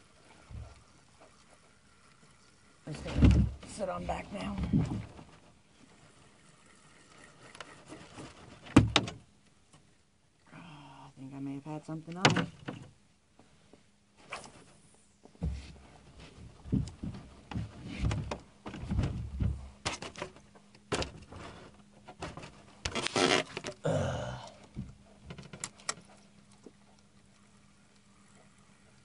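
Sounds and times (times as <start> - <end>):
rustling scrape: 4.1 - 8.7, 22.4 - 23.7
fishing gear knocks and thumps: 16.5 - 21.4.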